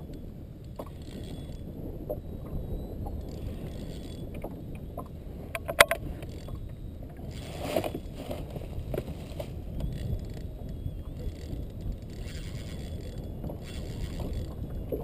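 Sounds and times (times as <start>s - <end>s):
low rumble of water: 0.0s - 15.0s
wind on microphone: 0.0s - 15.0s
sharp click: 5.5s - 6.3s.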